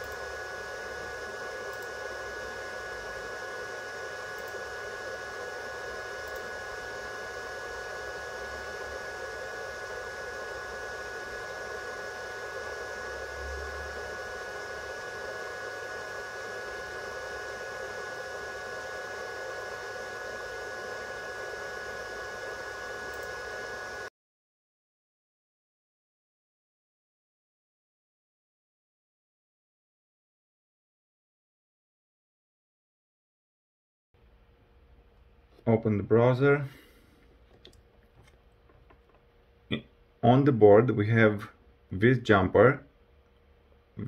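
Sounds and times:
fan-like whirring hiss: 0:00.0 - 0:24.1.

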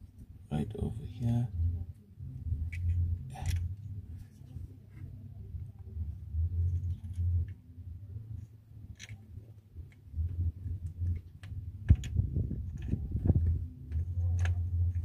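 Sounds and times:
low rumbling handling noise: 0:00.0 - 0:15.0.

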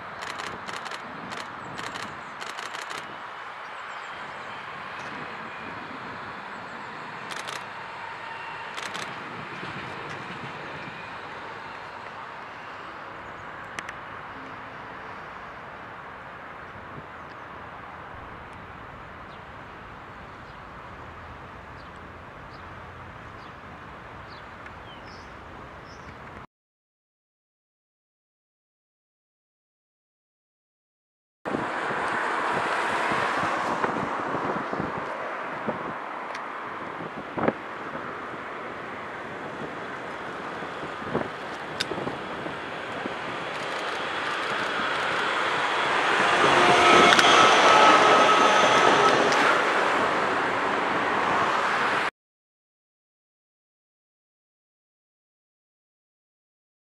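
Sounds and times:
distant outdoor rush: 0:00.0 - 0:26.4, 0:31.5 - 0:52.1
tram running on track: 0:00.0 - 0:26.4, 0:31.5 - 0:52.1
wind buffeting microphone: 0:04.3 - 0:12.4, 0:31.5 - 0:52.0.

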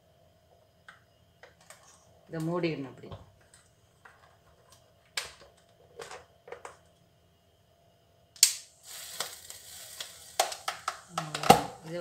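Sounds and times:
plastic lid clatter: 0:10.4 - 0:11.8.

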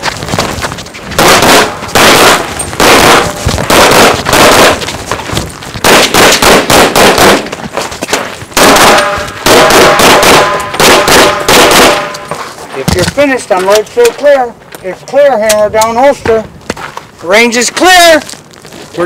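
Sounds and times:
rapid pistol gunfire: 0:01.2 - 0:04.9, 0:05.8 - 0:07.5, 0:08.6 - 0:12.2.

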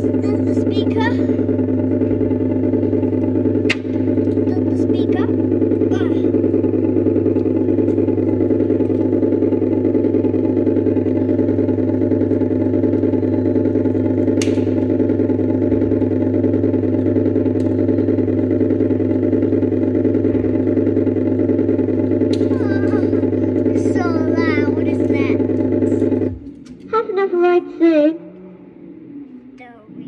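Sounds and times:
motorbike engine drone from speaker: 0:00.0 - 0:30.0.

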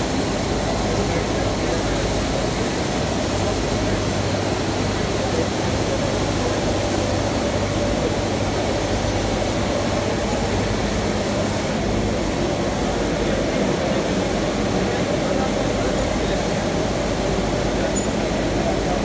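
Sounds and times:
printing press rollers whirring: 0:00.0 - 0:19.0.

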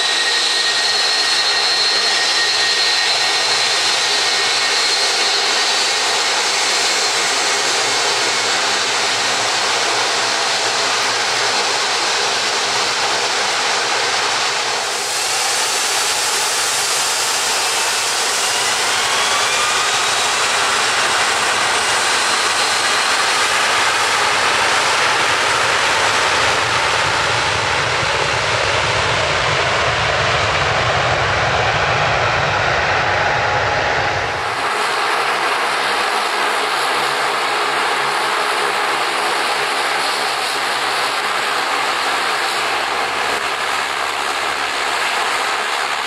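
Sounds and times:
jet engines at takeoff power: 0:00.0 - 0:46.0.

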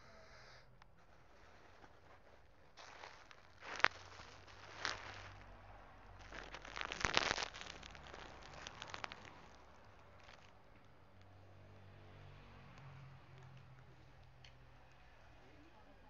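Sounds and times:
crackling rustling clicks: 0:00.9 - 0:11.3.

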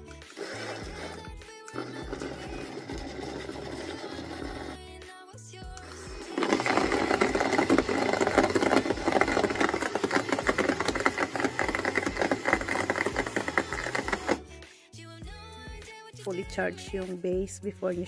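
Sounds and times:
blender motor whirring: 0:00.0 - 0:05.0, 0:05.7 - 0:14.4
ice clattering in blender: 0:00.2 - 0:04.8, 0:05.8 - 0:14.4.

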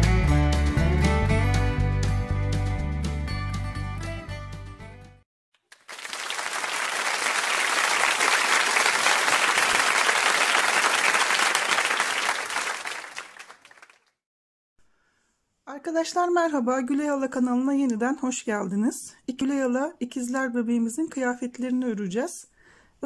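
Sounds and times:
background music: 0:00.0 - 0:05.2
crowd applauding: 0:05.6 - 0:14.2.

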